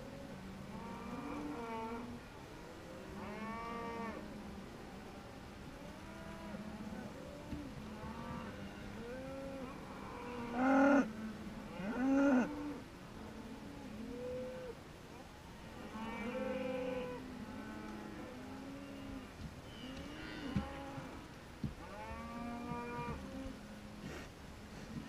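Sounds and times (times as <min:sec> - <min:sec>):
cows mooing: 0:15.9 - 0:21.2.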